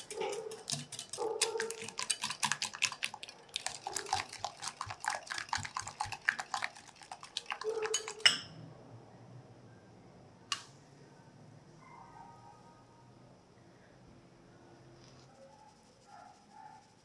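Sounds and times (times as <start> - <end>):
whisk clinking against glass bowl: 0.0 - 8.5.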